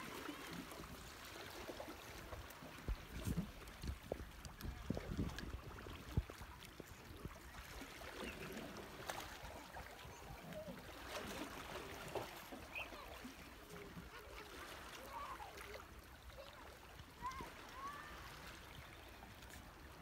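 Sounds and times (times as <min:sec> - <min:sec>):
water lapping: 0:00.0 - 0:20.0
wind: 0:00.0 - 0:20.0
faint clicks: 0:03.6 - 0:04.7.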